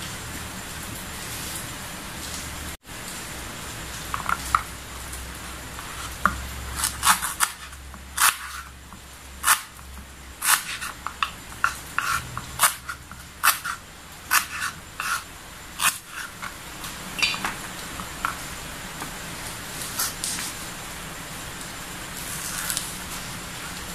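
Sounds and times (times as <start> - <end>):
knife chopping on cutting board: 5.8 - 16.6, 17.2 - 19.2.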